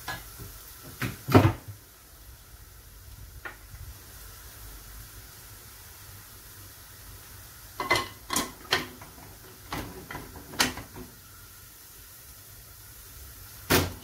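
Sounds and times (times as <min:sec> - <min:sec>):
cookware clanking on stove grate: 0:07.8 - 0:11.1.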